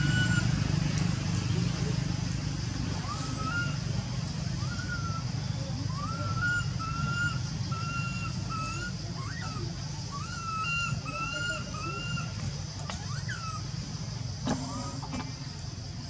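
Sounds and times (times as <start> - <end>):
whistle-like animal calls: 0.0 - 0.6, 2.9 - 3.8, 4.6 - 13.7.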